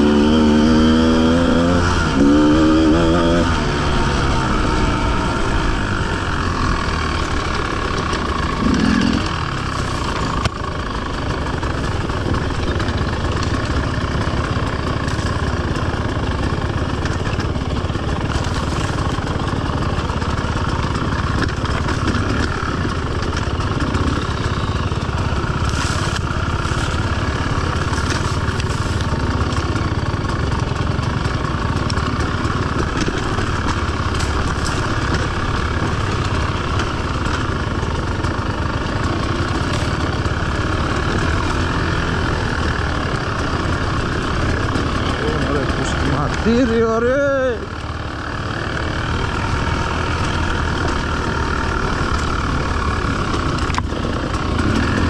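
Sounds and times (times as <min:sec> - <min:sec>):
motorcycle engine revving: 0:00.0 - 0:55.0.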